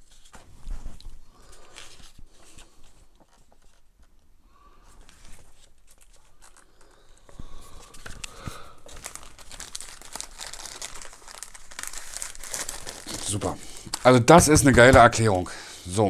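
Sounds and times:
paper leaflet rustling: 0.0 - 4.2, 4.9 - 15.3.

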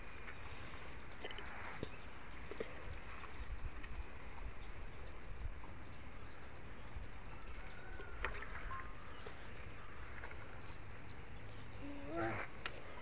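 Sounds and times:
leaves rustling and clicking: 7.7 - 13.0.

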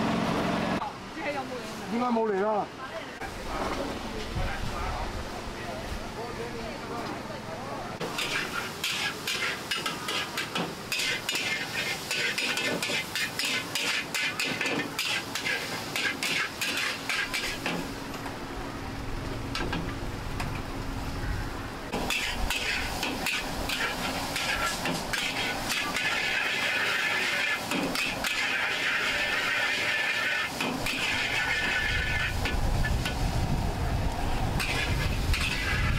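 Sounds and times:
metal spatula scraping a wok: 8.0 - 17.9, 21.9 - 33.2, 34.6 - 35.9
food frying hiss: 8.0 - 18.0, 21.8 - 35.9.

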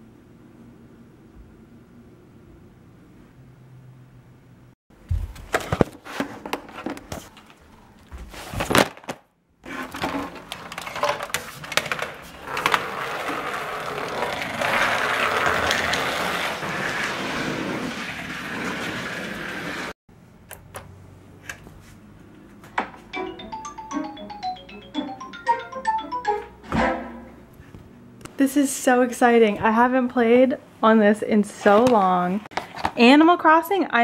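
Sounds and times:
rustling and scraping: 5.1 - 8.9, 9.6 - 19.9.

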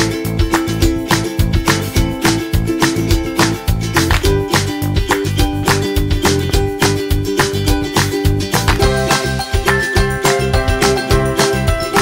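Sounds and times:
music with plucked notes: 0.0 - 12.0.

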